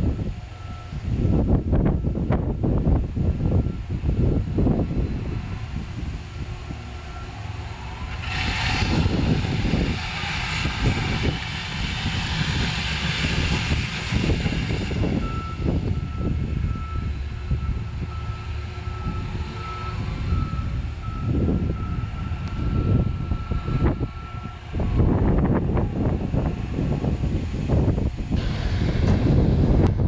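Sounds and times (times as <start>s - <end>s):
machine engine with rushing hiss: 0.0s - 30.0s
back-up alarm beeping: 15.2s - 24.6s.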